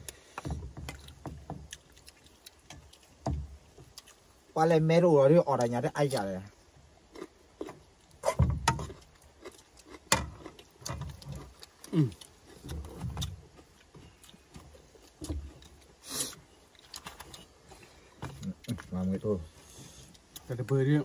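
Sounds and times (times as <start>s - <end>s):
wok knocking and thumping: 8.3s - 8.9s.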